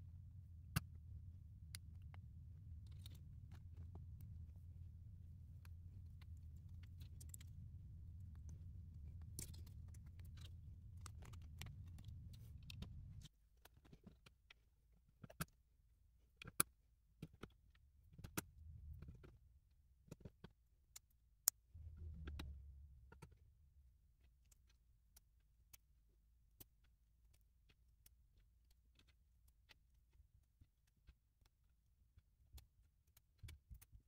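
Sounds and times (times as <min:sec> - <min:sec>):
low rumble: 0:00.0 - 0:13.3, 0:21.8 - 0:24.1.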